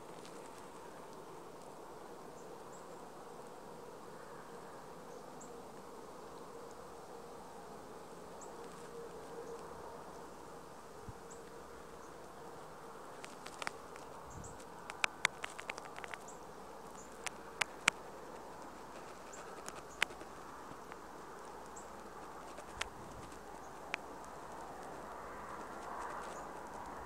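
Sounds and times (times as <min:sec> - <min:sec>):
insects buzzing: 0:00.0 - 0:27.0
sharp clicks: 0:14.8 - 0:16.3, 0:17.1 - 0:18.0.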